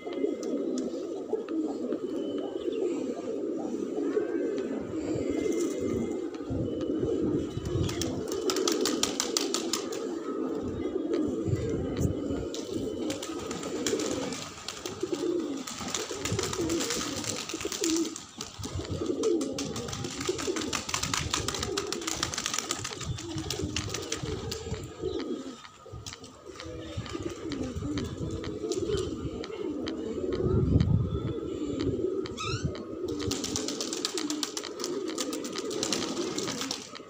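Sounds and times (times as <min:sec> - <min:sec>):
pigeons cooing: 0:00.0 - 0:37.0
beaks pecking on concrete: 0:33.2 - 0:37.0.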